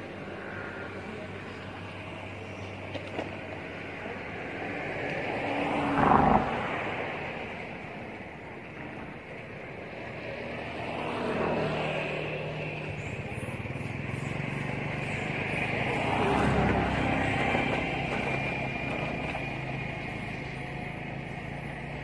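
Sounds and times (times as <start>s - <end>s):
vehicle engine running: 12.2s - 22.0s.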